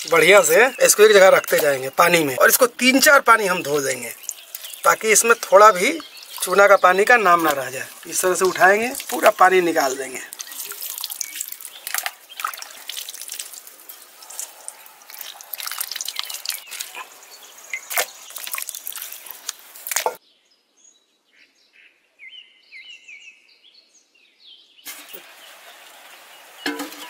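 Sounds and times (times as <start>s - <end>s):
small sharp splashes and clicks: 0.0s - 2.7s, 3.6s - 17.1s, 17.7s - 20.2s
water dripping and splashing: 0.0s - 20.2s, 24.9s - 27.0s
small birds chirping: 0.0s - 27.0s.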